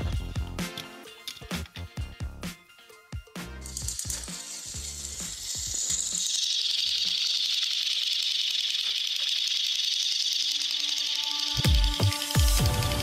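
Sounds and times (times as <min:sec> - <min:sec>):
toy train motors whirring: 0:03.6 - 0:13.0.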